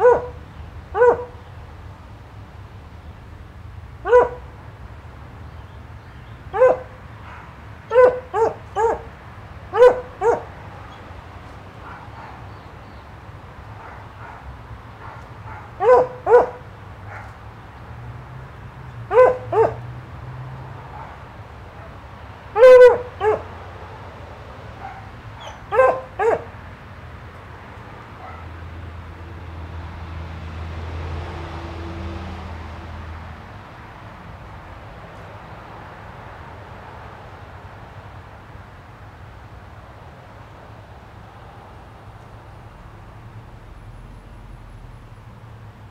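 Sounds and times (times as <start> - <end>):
dog barking: 0.0 - 1.4, 4.0 - 4.6, 6.5 - 11.0, 11.8 - 12.6, 13.8 - 17.4, 19.1 - 19.9, 20.9 - 22.0, 22.6 - 24.0, 24.8 - 26.6, 28.2 - 28.6.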